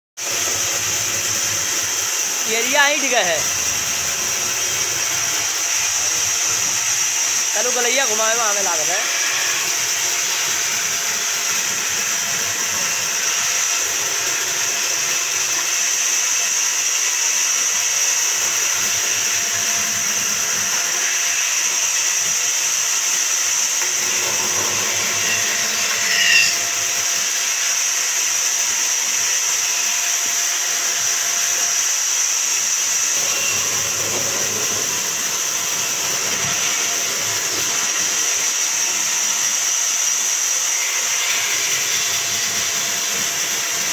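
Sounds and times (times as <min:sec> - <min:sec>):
band saw cutting wood: 0:00.2 - 0:43.9
saw blade squeal: 0:04.4 - 0:11.3, 0:14.8 - 0:28.6, 0:31.4 - 0:34.0.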